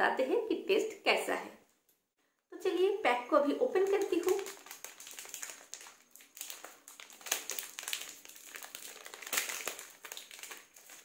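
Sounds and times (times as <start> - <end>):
plastic wrapper crackling: 3.6 - 11.0.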